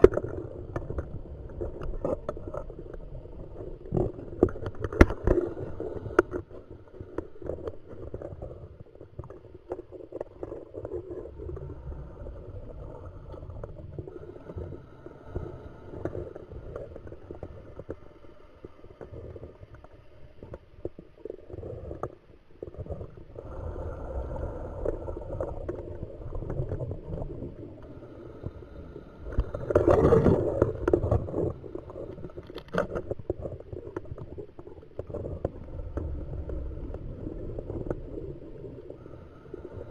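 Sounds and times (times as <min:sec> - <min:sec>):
diver breathing through regulator: 0:38.9 - 0:39.9.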